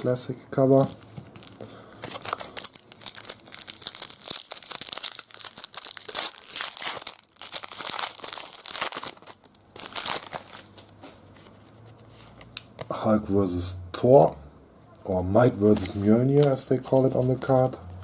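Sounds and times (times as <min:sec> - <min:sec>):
foil wrapper tearing and crinkling: 0:01.4 - 0:10.8.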